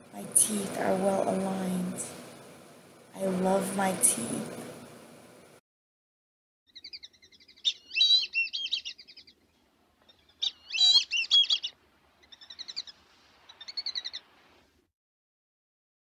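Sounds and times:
songbird warbling: 0:06.7 - 0:09.4, 0:10.0 - 0:14.3.

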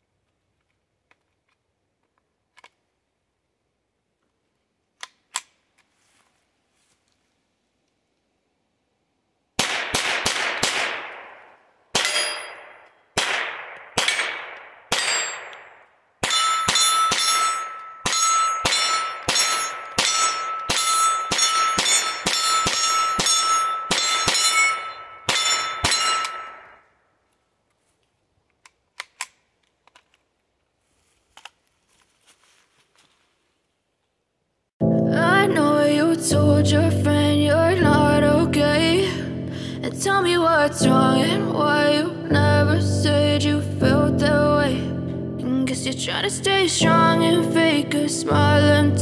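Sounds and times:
pistol shots: 0:09.6 - 0:26.7
steady ringing tone: 0:16.3 - 0:26.8.

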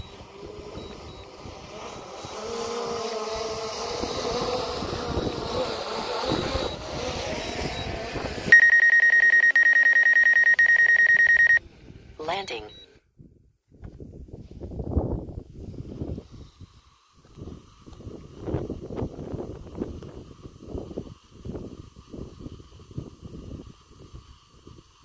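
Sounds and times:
high-pitched fluttering warning beep: 0:00.0 - 0:01.4, 0:06.2 - 0:11.6, 0:12.2 - 0:12.9
drone propellers humming: 0:00.0 - 0:11.6
wind: 0:00.0 - 0:25.0.

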